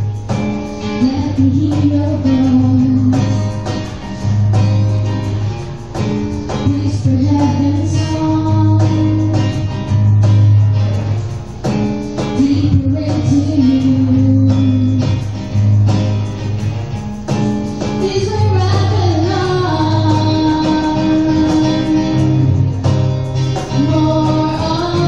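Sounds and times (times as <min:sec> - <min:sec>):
cajon beat: 0:00.0 - 0:25.0
strummed acoustic guitar: 0:00.0 - 0:25.0
women singing: 0:01.0 - 0:03.6, 0:06.6 - 0:09.5, 0:12.4 - 0:15.1, 0:18.0 - 0:22.6, 0:23.7 - 0:25.0.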